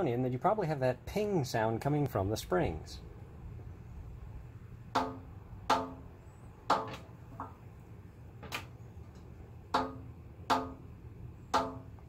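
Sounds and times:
metal spring pinging: 4.9s - 7.6s, 9.7s - 10.9s, 11.5s - 12.0s.

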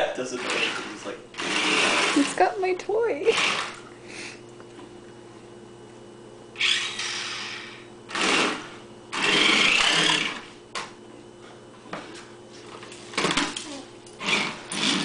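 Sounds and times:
remote-control car motors whirring: 0.4s - 2.4s, 6.6s - 10.4s, 14.2s - 15.0s.

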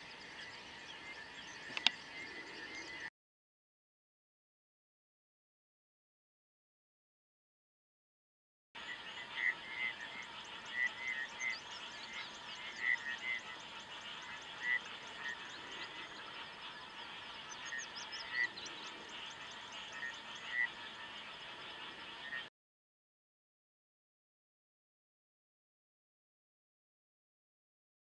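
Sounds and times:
chorus of frogs trilling: 8.8s - 22.5s.

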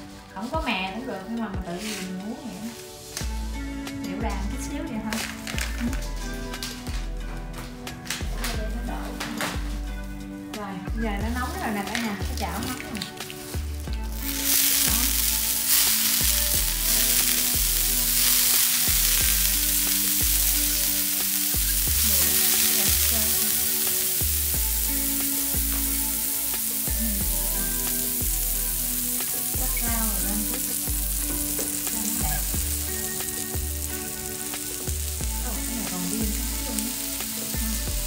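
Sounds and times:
butter sizzling on a griddle: 13.2s - 38.0s.

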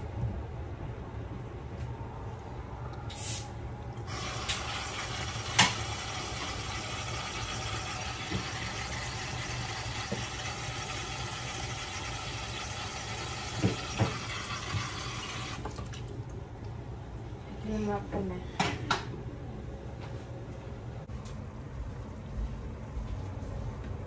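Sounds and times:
tap running into bowl: 5.5s - 6.0s, 8.1s - 9.0s, 9.9s - 11.0s, 13.4s - 16.0s.

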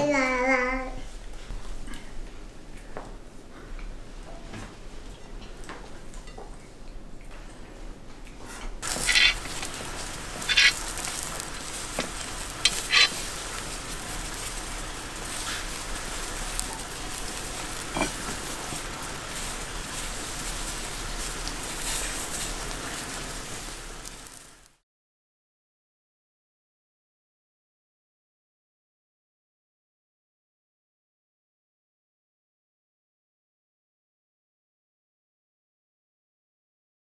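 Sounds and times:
fat crackling: 8.8s - 24.8s
meat sizzling over charcoal: 8.8s - 24.8s.

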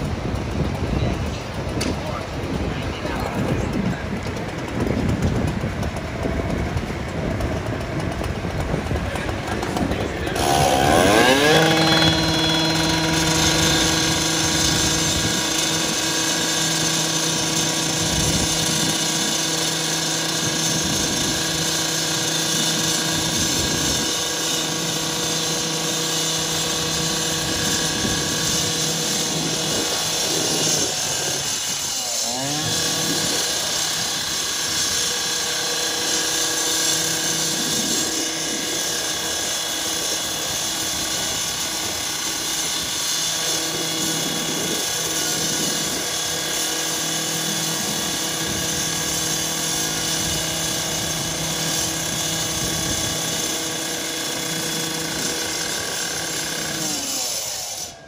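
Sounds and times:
rotary saw cutting steel: 0.0s - 58.0s.

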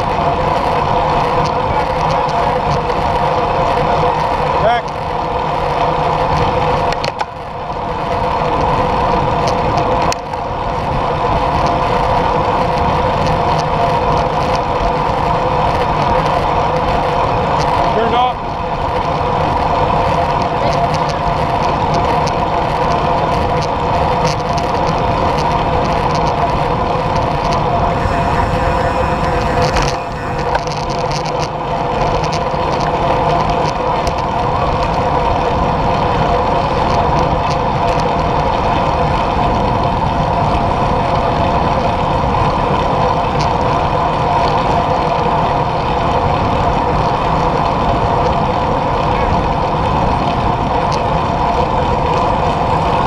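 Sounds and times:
tyres on asphalt: 0.0s - 39.0s
constant hum: 0.0s - 53.0s
wind rush: 10.6s - 36.6s.

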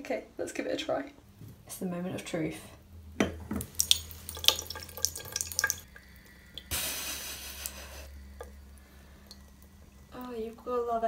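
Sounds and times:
water trickling into sink: 3.2s - 6.7s, 7.6s - 11.0s
tap hissing: 6.5s - 10.3s.

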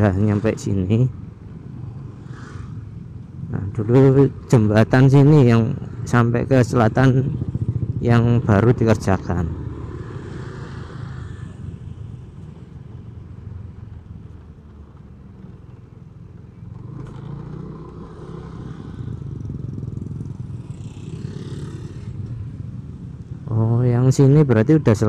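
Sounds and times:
road noise: 0.0s - 25.0s
scooter engine running: 15.2s - 23.1s.

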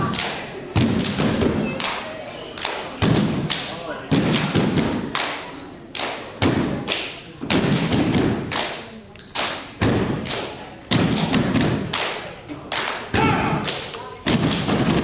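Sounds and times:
voices: 0.0s - 4.2s, 11.9s - 14.4s.

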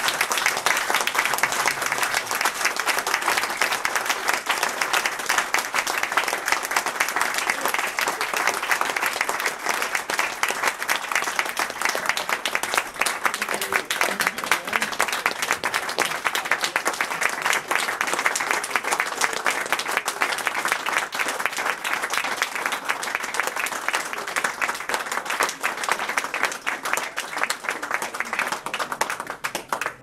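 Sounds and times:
crowd applauding: 0.0s - 30.0s.

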